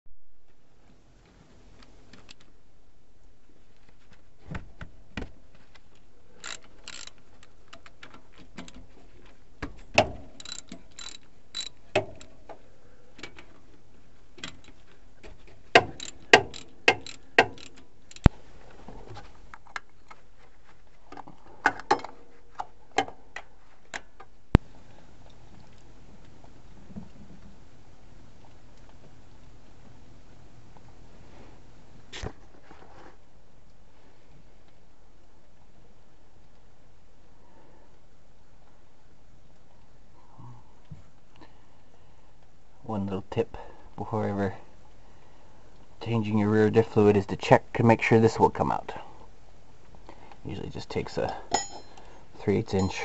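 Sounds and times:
ratchet wrench clicking: 6.4 - 7.2, 10.4 - 12.3, 15.8 - 18.3
metal tools clanking on bolts: 15.8 - 18.2, 51.3 - 52.0.

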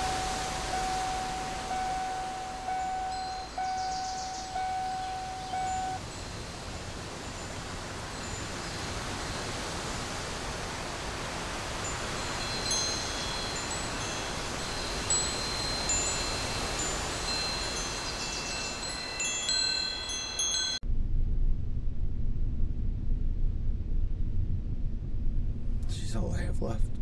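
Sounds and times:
metal wind chime ringing: 0.0 - 9.6, 11.8 - 20.8
steady hiss: 0.0 - 20.7.

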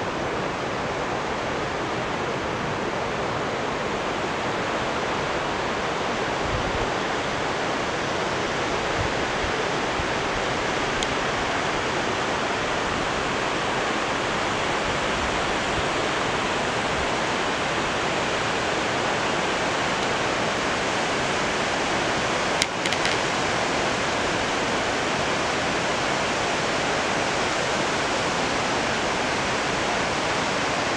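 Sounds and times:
stream running over stones: 17.1 - 30.9.

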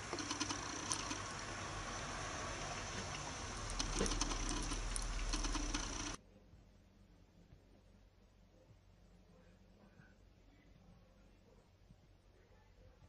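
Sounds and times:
kitten sucking on paw: 0.0 - 1.3
steady hiss: 0.0 - 6.2.

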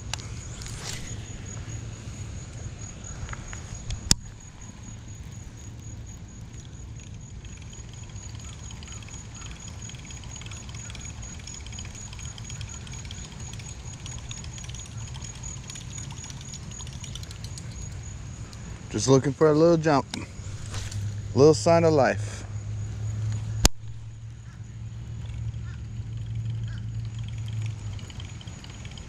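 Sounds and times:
fishing reel whirring: 0.1 - 19.2, 22.8 - 29.0
sharp click: 23.6 - 24.0.

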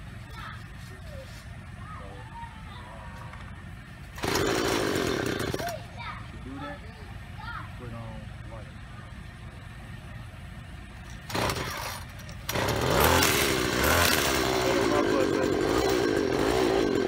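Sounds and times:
string trimmer engine starting: 4.2 - 5.8, 11.1 - 17.0.

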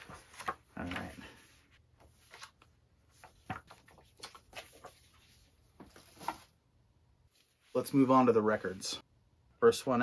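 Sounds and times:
paper pages rustling: 0.0 - 6.6.

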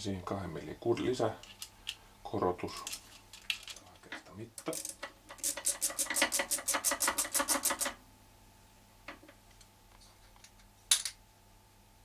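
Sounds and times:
micrometer ratchet clicking: 4.6 - 8.0.

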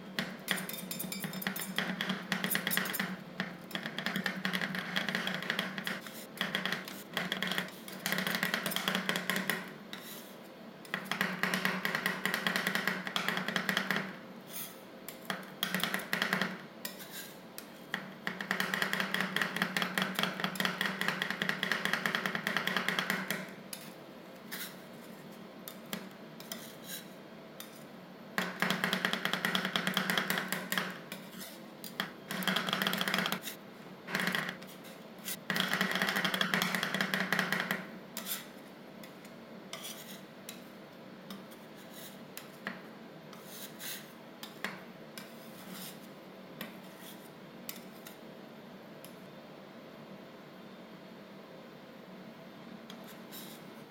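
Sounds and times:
metal spatulas tapping on steel plate: 0.2 - 9.7, 17.6 - 23.9, 28.4 - 33.6, 35.4 - 38.4
spatulas scraping on steel plate: 0.5 - 4.2, 9.9 - 10.3, 14.5 - 14.8, 16.8 - 18.0, 23.7 - 25.8, 26.4 - 27.9, 30.0 - 35.4, 38.2 - 40.7, 41.3 - 42.6, 45.2 - 48.2.

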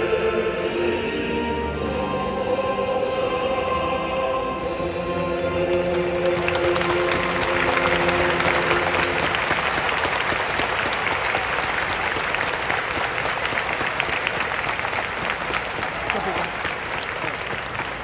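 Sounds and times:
song chord over stadium speakers: 0.0 - 10.4
stadium crowd applauding: 5.6 - 18.0.

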